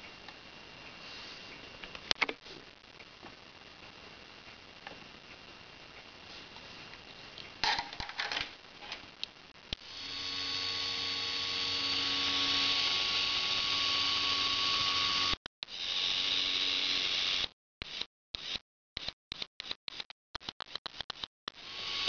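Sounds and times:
small geared motor whining: 9.8s - 18.6s, 21.5s - 22.0s.

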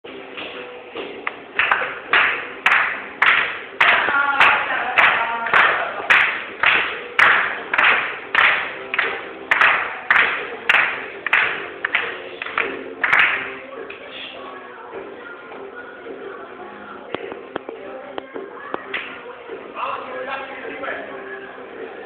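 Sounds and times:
faint music: 0.0s - 22.0s.

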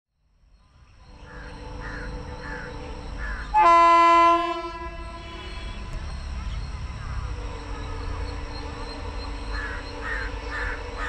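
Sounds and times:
train horn blast: 1.6s - 6.1s.

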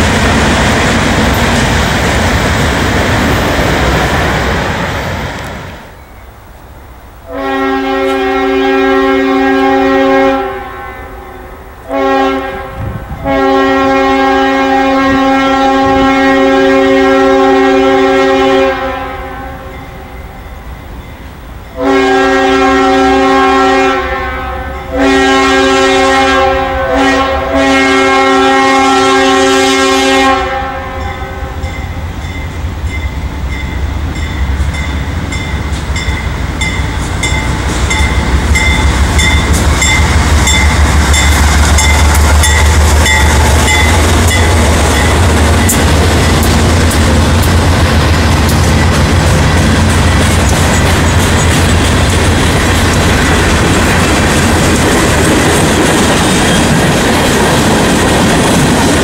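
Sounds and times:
train rumble: 0.0s - 59.0s
multi-chime locomotive horn: 7.2s - 47.8s.

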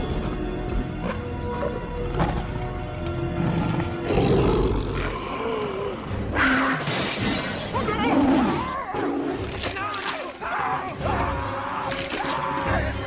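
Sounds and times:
panthers roaring and snarling: 3.4s - 6.9s.

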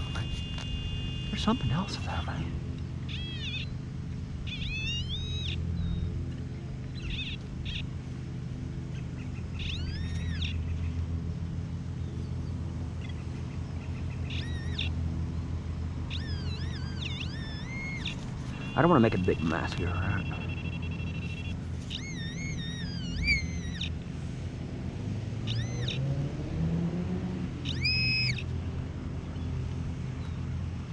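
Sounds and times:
bird calling: 0.0s - 8.0s, 8.7s - 11.1s, 12.3s - 15.4s, 16.0s - 24.1s, 25.4s - 26.2s, 27.6s - 28.6s.

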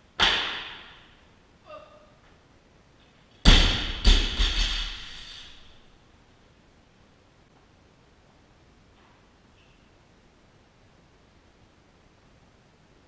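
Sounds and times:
barbell dropped on platform: 3.4s - 5.1s.

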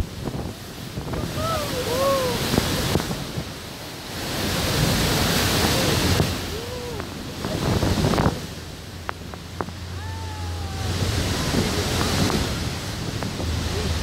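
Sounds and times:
rushing water pounding: 0.0s - 14.0s
wind buffeting microphone: 0.0s - 14.0s
people crying out: 1.2s - 2.6s, 9.9s - 11.2s.

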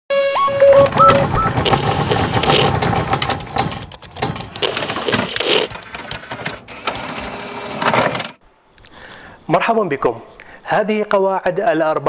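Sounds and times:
short electronic beep: 0.1s - 2.6s
mechanical clicking and ratcheting: 0.8s - 6.6s.

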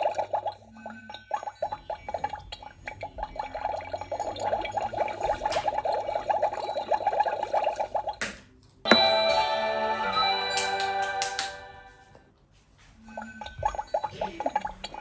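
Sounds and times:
cauldron bubbling: 0.0s - 9.1s, 13.1s - 15.0s.

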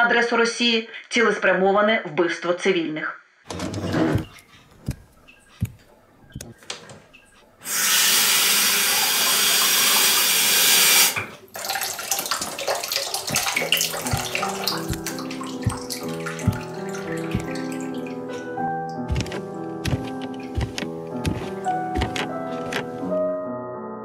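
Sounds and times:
tap water running into sink: 7.7s - 18.5s.

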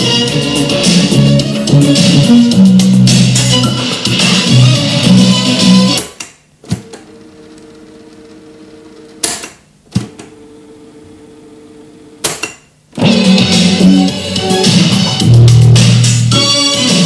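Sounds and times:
music from a boombox: 0.0s - 6.1s, 13.0s - 17.0s.

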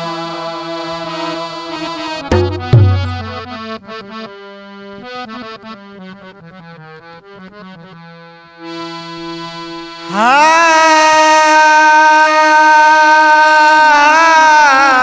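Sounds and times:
harmonium melody over drone: 0.0s - 15.0s.

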